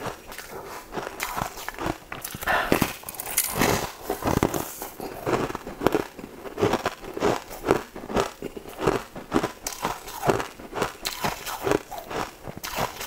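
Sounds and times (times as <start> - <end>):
crunchy chewing: 0.0 - 13.0.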